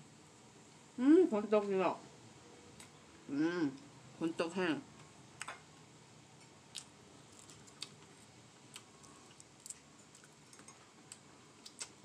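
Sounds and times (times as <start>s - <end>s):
mouth clicks and smacks from chewing: 8.7s - 12.0s.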